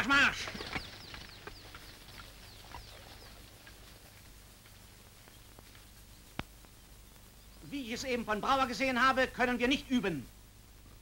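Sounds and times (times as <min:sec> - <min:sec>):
film soundtrack hum and hiss: 0:00.0 - 0:11.0
faint bird chirps: 0:00.2 - 0:04.2, 0:05.1 - 0:07.9.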